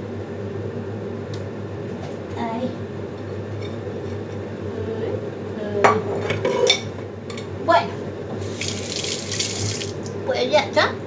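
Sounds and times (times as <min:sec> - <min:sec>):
tap water running: 0:08.4 - 0:10.2.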